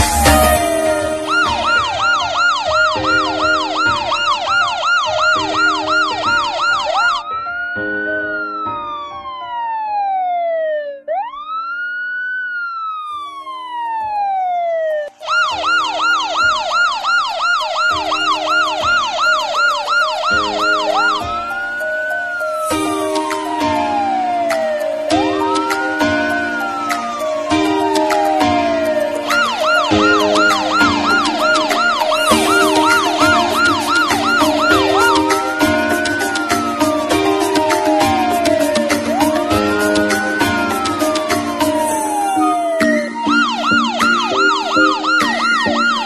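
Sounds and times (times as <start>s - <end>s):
emergency siren yelping and wailing: 0.0s - 46.0s.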